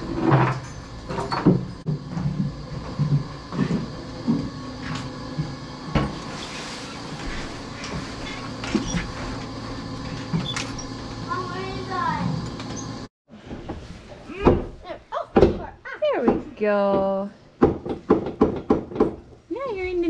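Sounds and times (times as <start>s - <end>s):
steady machinery hum: 0.0s - 13.1s.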